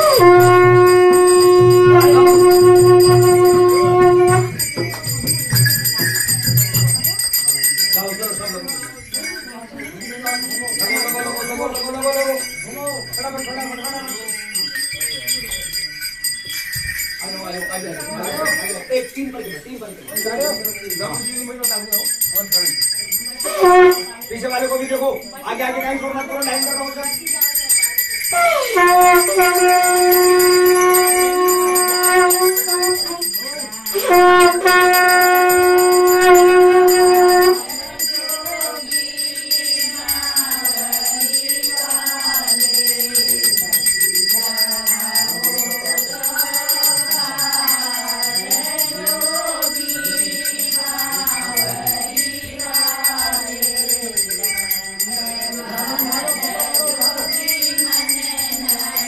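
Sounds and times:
blown horn blasts: 0:00.0 - 0:07.1, 0:23.4 - 0:24.3, 0:28.3 - 0:33.4, 0:34.0 - 0:37.9
small bells ringing: 0:00.0 - 0:59.0
group of voices chanting: 0:44.4 - 0:54.1.

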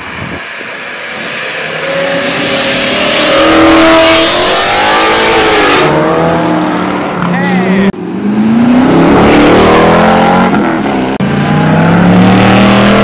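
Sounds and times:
car accelerating past: 0:00.2 - 0:07.3.

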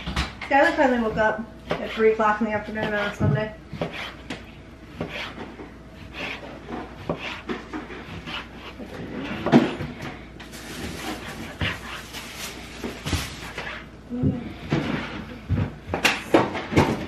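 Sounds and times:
knife chopping on plastic board: 0:01.0 - 0:02.0, 0:02.7 - 0:10.0, 0:11.0 - 0:12.0.

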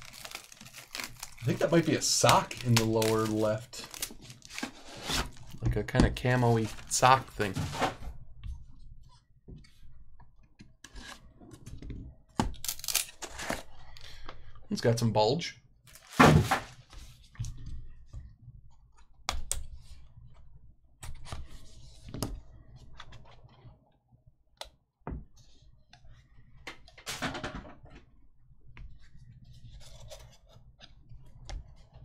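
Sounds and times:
cards rustling in box: 0:00.0 - 0:05.6, 0:06.3 - 0:07.9.

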